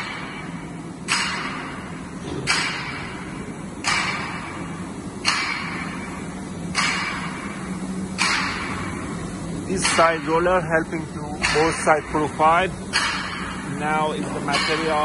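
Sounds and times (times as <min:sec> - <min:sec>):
low machine hum: 0:00.0 - 0:15.0
sharp machine hiss: 0:00.0 - 0:15.0.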